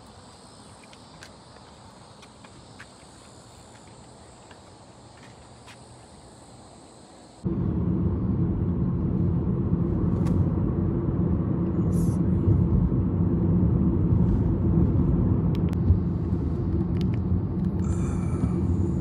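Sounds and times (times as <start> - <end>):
insects chirring: 0.0 - 7.5
low vehicle rumble: 7.4 - 19.0.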